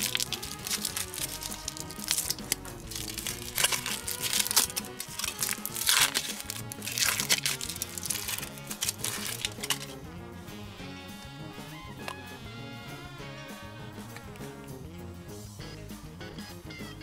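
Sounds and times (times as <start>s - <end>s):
candy wrapper crinkling: 0.0s - 10.0s
background music: 0.0s - 17.0s.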